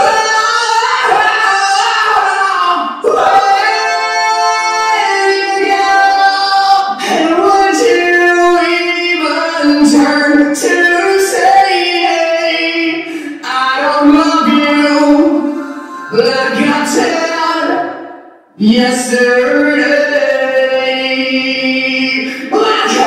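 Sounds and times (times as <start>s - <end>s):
woman singing unaccompanied: 0.0s - 17.8s.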